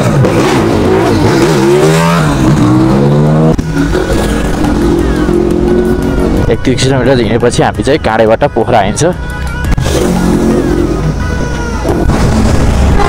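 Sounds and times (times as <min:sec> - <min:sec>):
vehicle engine revving: 0:00.0 - 0:06.6, 0:09.7 - 0:13.0
road noise: 0:00.0 - 0:13.0.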